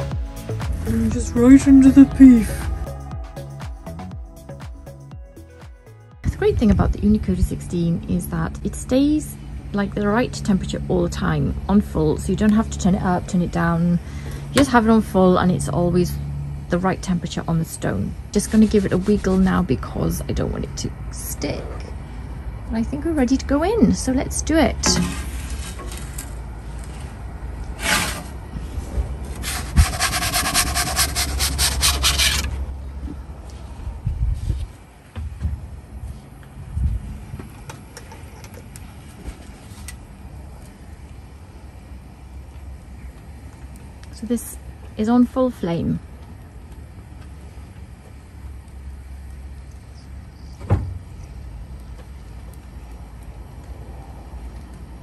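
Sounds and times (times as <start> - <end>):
gas burner rushing: 6.4 - 32.8
wooden peel rasping on stone: 24.8 - 27.0, 27.7 - 28.3, 29.4 - 32.6.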